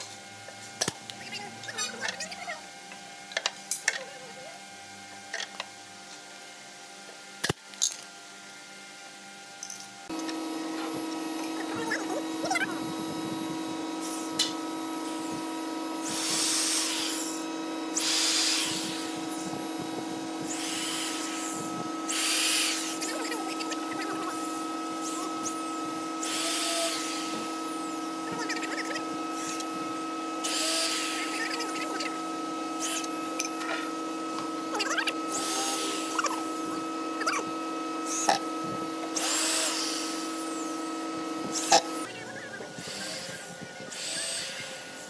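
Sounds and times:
steady hum: 0.0 - 45.0
electric drill driving screws: 15.1 - 34.7, 39.0 - 42.1, 42.8 - 45.0.

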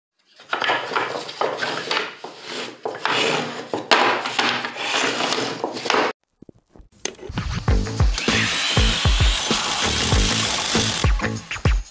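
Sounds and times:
wooden boards rubbing and knocking: 0.4 - 7.6.

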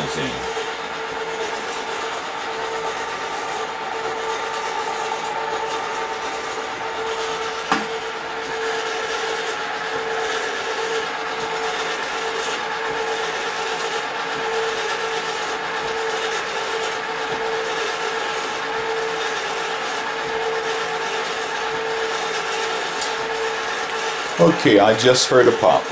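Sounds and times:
agitators scraping inside kettles: 0.0 - 25.9
motors humming: 0.0 - 25.9.

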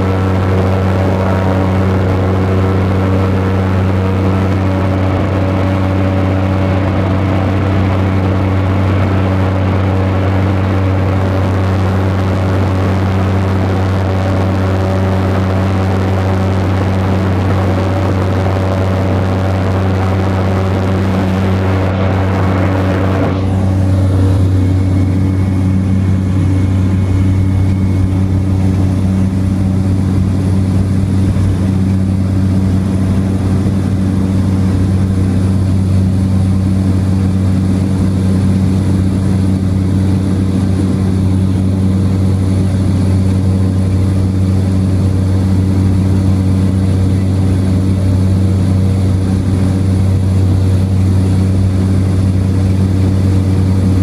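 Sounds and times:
rushing air noise: 0.0 - 37.7
propeller engine drone: 0.0 - 54.0.

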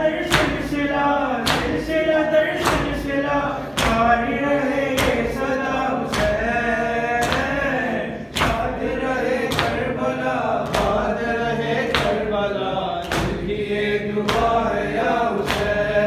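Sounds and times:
man chanting through a microphone: 0.0 - 16.0.

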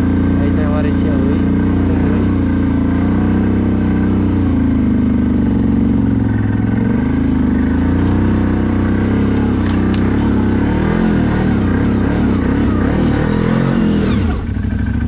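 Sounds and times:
atv engine revving: 0.0 - 15.0
sharp clicks: 9.5 - 10.5.

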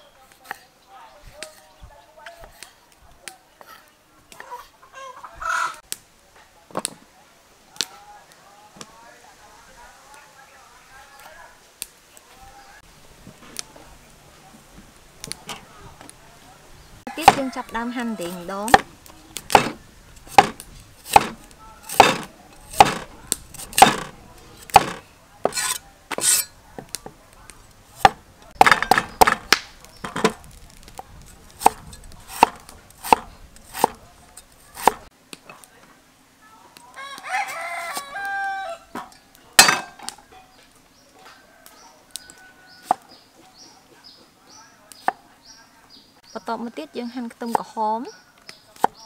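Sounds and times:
rooster crowing: 17.1 - 18.6, 36.9 - 39.0, 41.2 - 43.2
cleaver chopping on wooden block: 17.2 - 17.5, 18.7 - 27.0, 28.0 - 30.5, 31.6 - 34.0, 34.8 - 35.1.

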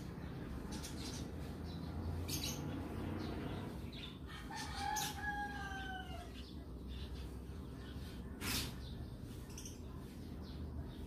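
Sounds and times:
rooster crowing: 4.3 - 6.4.

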